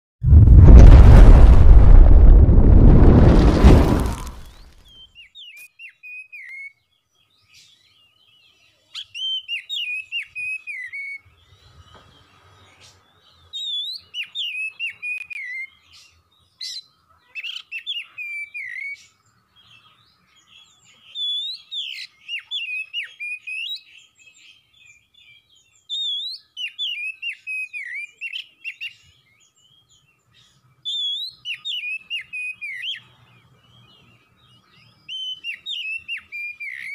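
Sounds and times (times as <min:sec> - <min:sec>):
loud boom: 0:00.2 - 0:04.7
bird whistling song: 0:04.9 - 0:12.2, 0:13.5 - 0:19.1, 0:19.7 - 0:36.9.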